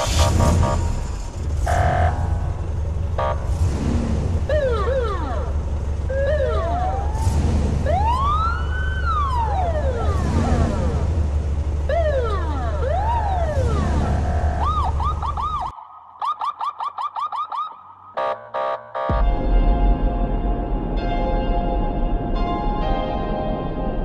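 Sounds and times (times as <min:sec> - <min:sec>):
car alarm wailing and chirping: 0:04.5 - 0:07.3
deep drone: 0:19.1 - 0:24.0.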